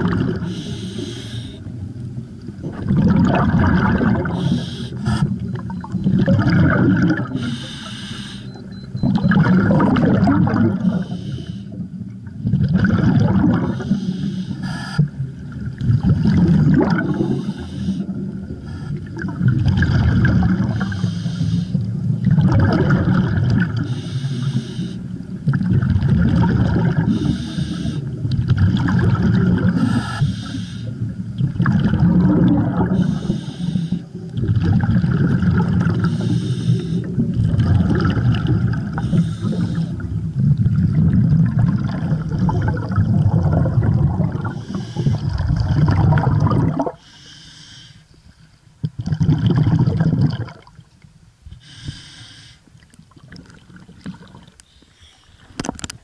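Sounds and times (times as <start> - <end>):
bubbling exhale underwater: 0.0 - 1.8, 2.5 - 47.2, 48.8 - 50.9, 53.0 - 56.0
regulator hiss on inhale: 0.4 - 1.7, 4.3 - 5.4, 7.4 - 8.6, 10.9 - 11.8, 13.7 - 15.2, 17.1 - 19.1, 20.8 - 21.9, 23.8 - 25.2, 27.1 - 28.2, 29.8 - 31.1, 32.9 - 34.3, 36.0 - 37.2, 38.9 - 40.1, 44.6 - 45.2, 47.0 - 48.5, 51.5 - 52.7, 54.6 - 55.6.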